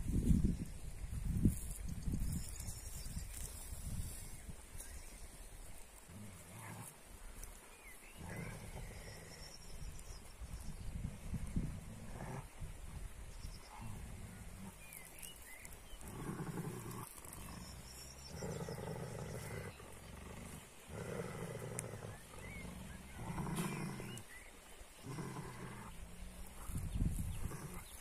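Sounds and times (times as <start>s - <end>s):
dog growling: 8.2s - 9.4s, 16.0s - 24.3s, 25.0s - 28.0s.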